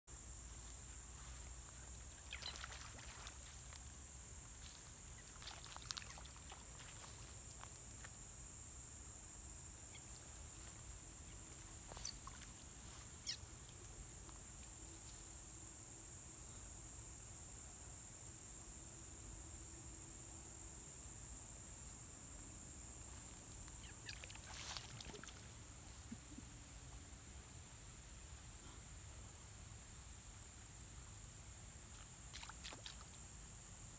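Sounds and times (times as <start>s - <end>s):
insects buzzing: 0.1s - 33.9s
frogs squeaking: 1.7s - 3.6s, 4.6s - 7.3s, 9.9s - 13.5s, 23.7s - 26.5s
frogs splashing into pond: 1.9s - 8.1s, 11.9s - 13.4s, 23.8s - 25.6s, 31.9s - 33.3s.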